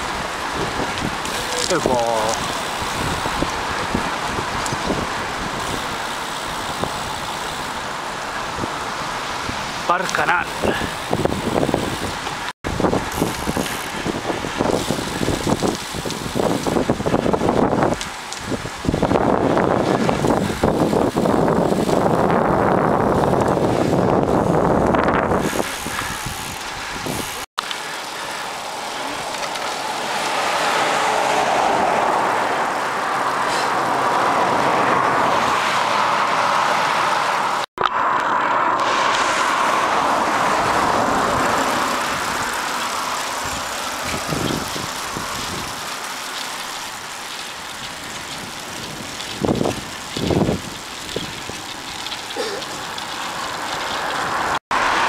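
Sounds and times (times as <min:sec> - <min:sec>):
wind buffeting microphone: 0:00.0 - 0:27.5, 0:38.8 - 0:46.0, 0:47.8 - 0:53.0
bicycle road noise: 0:00.0 - 0:55.0.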